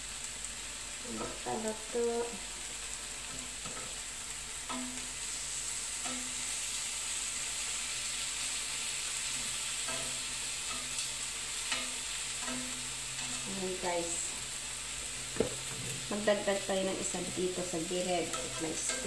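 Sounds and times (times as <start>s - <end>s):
chicken sizzling in a grill pan: 0.0s - 19.0s
tongs clicking against pan: 4.6s - 5.1s, 6.0s - 6.4s, 9.8s - 13.4s, 18.0s - 19.0s.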